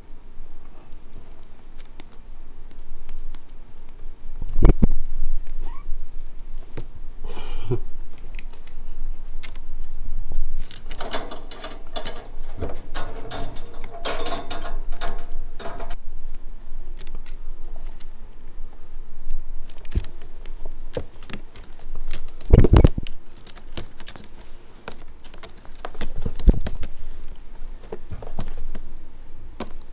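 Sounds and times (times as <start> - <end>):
clicks and rustles: 10.6 - 16.4, 19.6 - 28.9
metal chain and latch rattling: 10.8 - 16.0.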